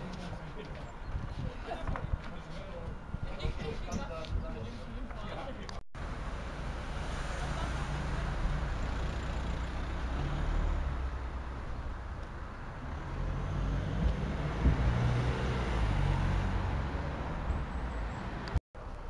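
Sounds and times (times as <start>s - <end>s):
vehicle engine rumbling: 5.7s - 19.0s.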